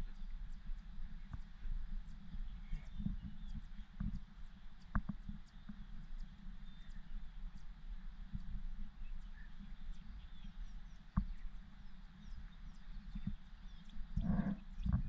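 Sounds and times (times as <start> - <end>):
steady low rumble: 0.0 - 15.0.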